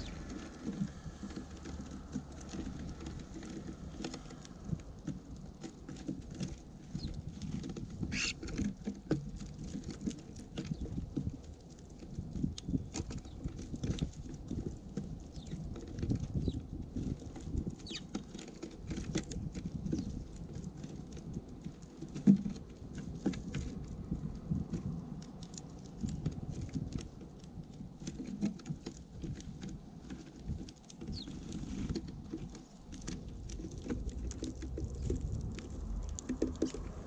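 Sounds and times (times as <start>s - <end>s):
birds pecking on feeder: 0.0s - 37.0s
low rumble: 33.2s - 37.0s.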